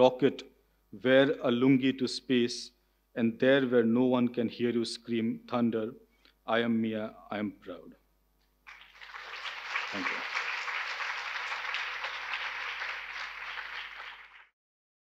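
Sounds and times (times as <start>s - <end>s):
audience applauding: 8.7s - 14.5s.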